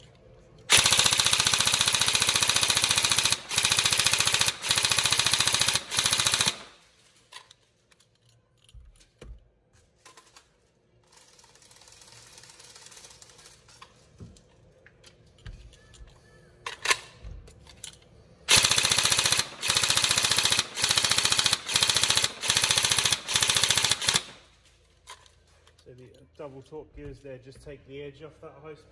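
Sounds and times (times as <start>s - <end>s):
airsoft gun firing bursts: 0.7s - 6.8s, 18.5s - 24.5s
handling knocks and clicks: 7.3s - 10.6s.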